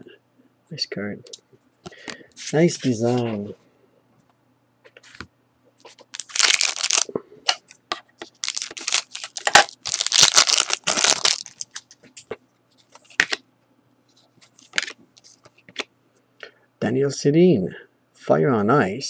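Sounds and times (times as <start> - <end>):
foil wrapper tearing and crinkling: 6.1 - 7.1, 8.3 - 11.9.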